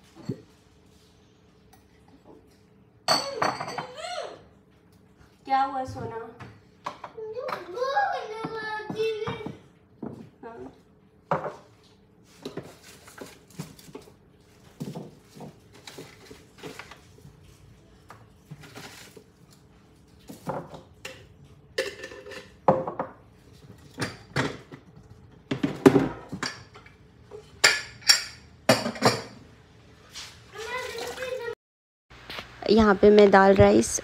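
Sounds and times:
pots and utensils clinking: 3.0 - 4.0, 20.3 - 24.9, 25.5 - 29.4.

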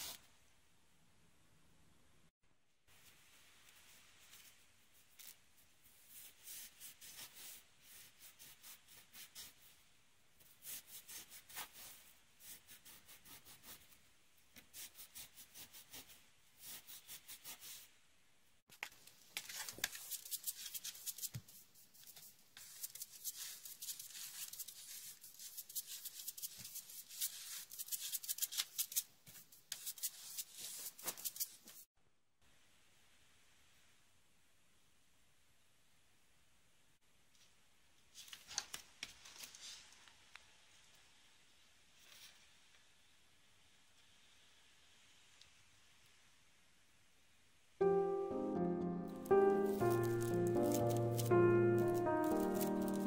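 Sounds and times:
hand brush sweeping wooden floor: 49.2 - 53.0.

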